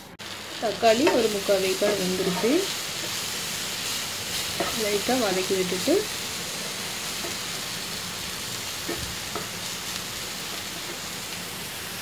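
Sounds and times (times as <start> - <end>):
masala sizzling in a pan: 0.0 - 12.0
spatula scraping pan: 1.0 - 5.2.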